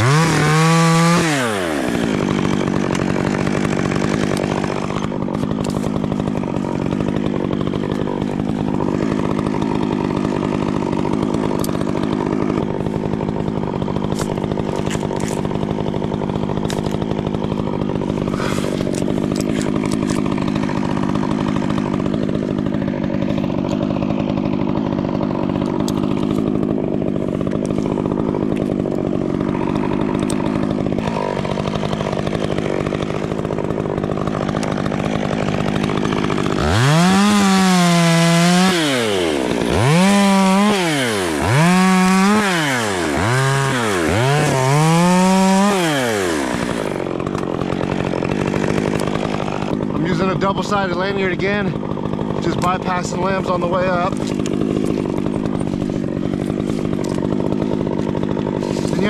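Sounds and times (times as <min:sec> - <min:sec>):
chainsaw revving: 0:00.0 - 0:59.0.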